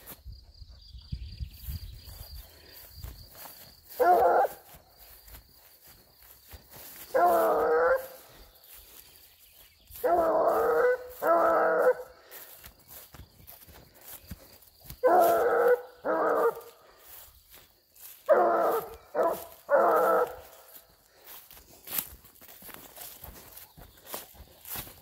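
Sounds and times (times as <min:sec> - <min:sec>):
footsteps through grass: 0:01.5 - 0:25.0
dog baying: 0:04.0 - 0:04.7, 0:07.1 - 0:08.3, 0:10.0 - 0:12.1, 0:15.0 - 0:16.7, 0:18.2 - 0:20.6.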